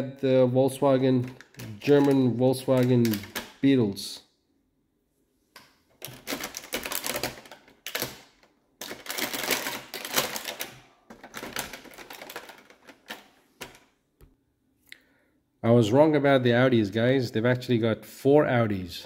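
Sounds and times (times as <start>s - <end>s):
plastic and cardboard crinkling: 0.8s - 3.7s, 6.0s - 13.9s.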